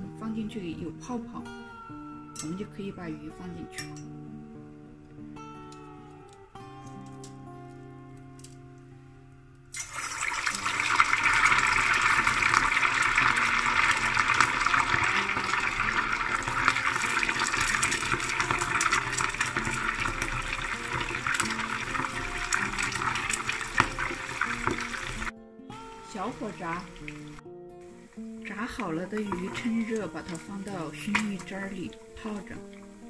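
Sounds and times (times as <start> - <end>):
fish sizzling in hot oil: 9.7 - 25.3, 25.9 - 33.0.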